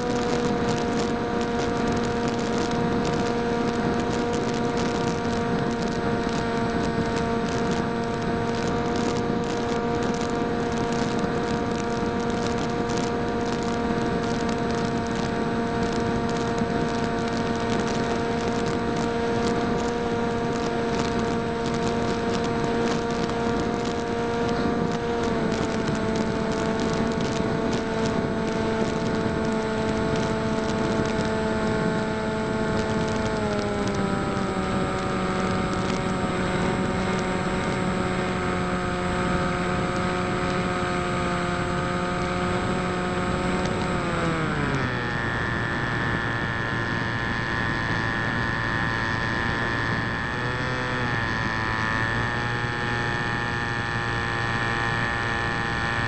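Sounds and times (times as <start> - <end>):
electric motor and propeller whine: 0.0 - 56.0
wind rush: 0.0 - 56.0.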